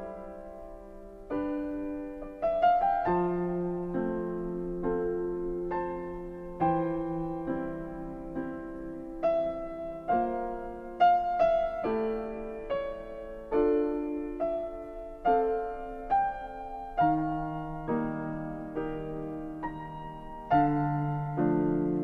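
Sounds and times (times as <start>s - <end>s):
slow piano melody: 0.0s - 22.0s.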